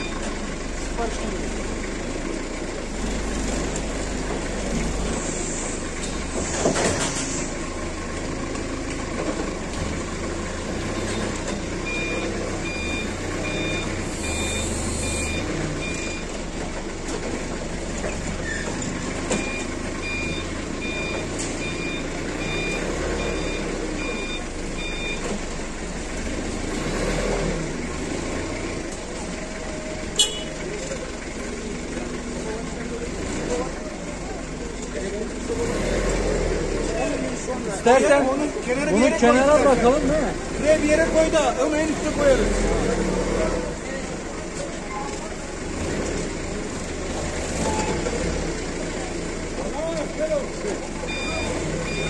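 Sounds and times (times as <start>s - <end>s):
reversing alarm beeping: 0.0s - 0.2s, 10.9s - 16.3s, 19.3s - 25.4s, 51.1s - 52.0s
forklift engine running: 0.0s - 52.0s.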